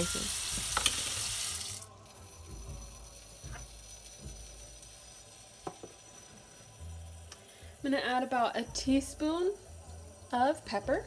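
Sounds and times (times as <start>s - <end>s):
tap water pouring into metal pot: 0.0s - 1.9s.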